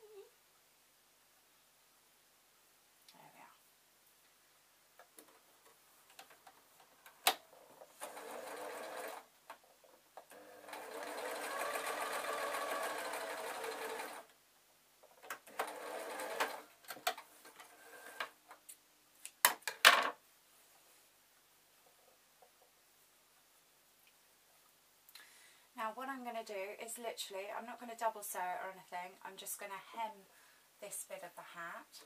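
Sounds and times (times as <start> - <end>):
sewing machine stitching: 7.8 - 9.3, 10.3 - 14.3, 15.3 - 18.3.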